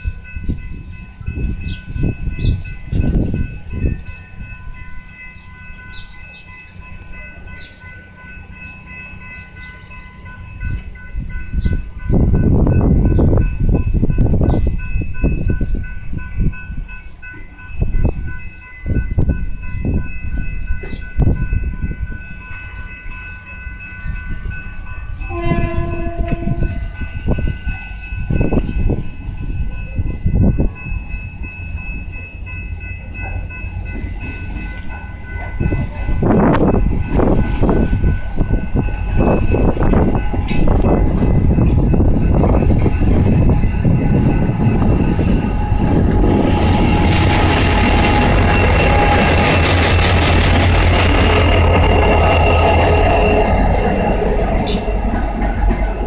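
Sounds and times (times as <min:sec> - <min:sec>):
wind buffeting microphone: 0:00.0 - 0:05.0, 0:10.4 - 0:22.5, 0:23.2 - 0:32.8, 0:33.8 - 0:56.0
crossing warning ringing: 0:00.0 - 0:56.0
locomotive engine rumble: 0:19.1 - 0:56.0
train horn: 0:25.3 - 0:26.9.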